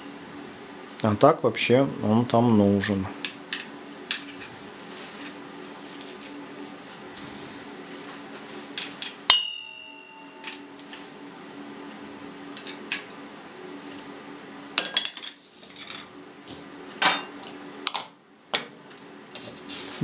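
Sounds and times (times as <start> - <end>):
bowl ringing: 9.3 - 10.8, 17.0 - 17.5
metal tools clinking on bowl: 17.0 - 17.5
tools clattering onto saucer: 17.0 - 18.0.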